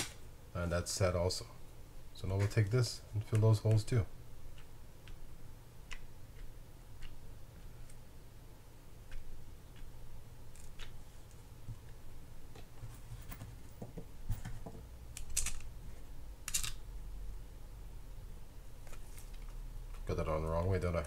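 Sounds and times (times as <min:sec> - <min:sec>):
small metal parts clicking: 0:15.2 - 0:15.7, 0:16.5 - 0:16.8.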